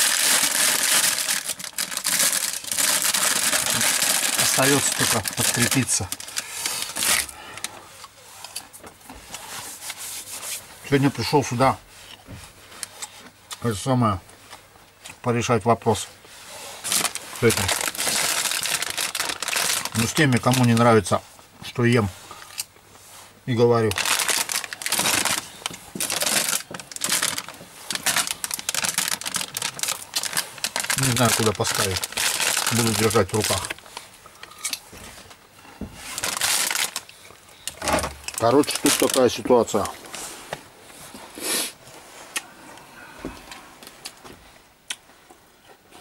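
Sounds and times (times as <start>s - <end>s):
plastic chip bag crinkling: 0.0s - 7.7s, 16.8s - 21.2s, 23.8s - 35.4s, 36.0s - 40.0s
person breathing: 6.3s - 8.0s, 42.4s - 43.8s.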